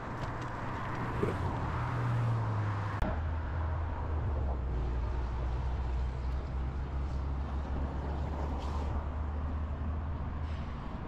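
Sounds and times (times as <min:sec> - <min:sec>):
traffic hum: 0:00.0 - 0:11.0.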